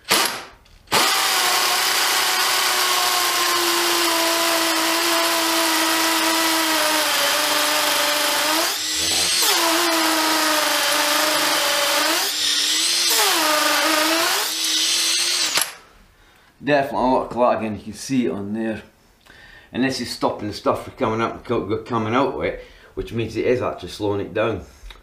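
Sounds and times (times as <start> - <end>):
impact driver drilling into brick: 0.0 - 15.8.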